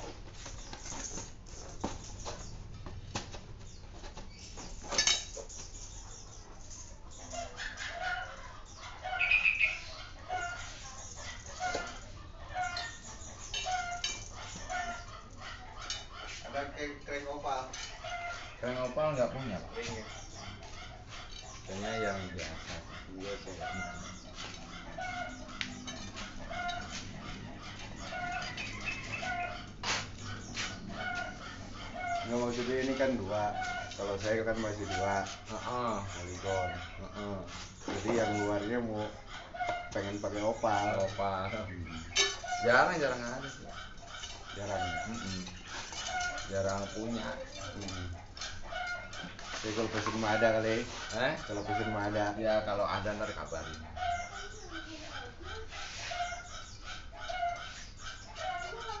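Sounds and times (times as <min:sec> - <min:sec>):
chickens clucking: 0:00.0 - 0:59.0.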